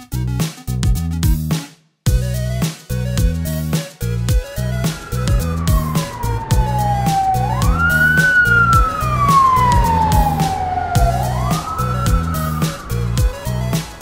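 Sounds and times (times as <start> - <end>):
background music with steady beat: 0.0 - 14.0
ambulance siren wailing: 4.1 - 14.0.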